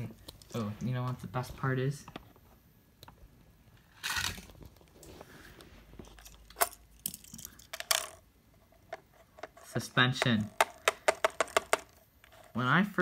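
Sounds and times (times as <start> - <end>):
toy cars clicking on plastic: 8.9 - 12.5.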